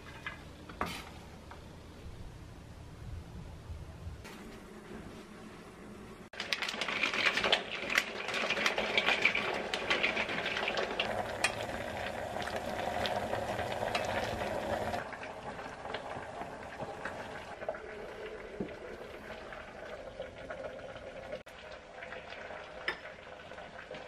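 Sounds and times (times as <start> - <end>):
water boiling and bubbling: 6.2 - 24.0
dry pasta clattering into metal pot: 6.4 - 11.6.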